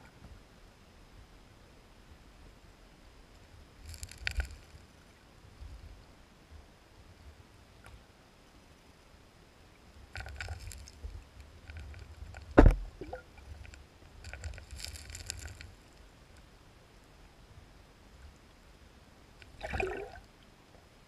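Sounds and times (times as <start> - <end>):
gravel crackling and clicking underwater: 3.8 - 6.0, 10.0 - 16.5
loud thump: 12.6 - 12.9.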